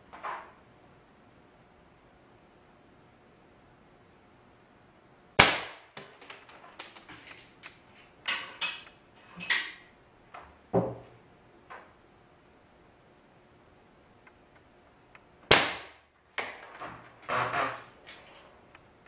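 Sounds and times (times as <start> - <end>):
air gun firing crack: 5.4 - 6.2, 15.5 - 16.0
small clicks and knocks: 5.9 - 10.6, 16.4 - 19.0.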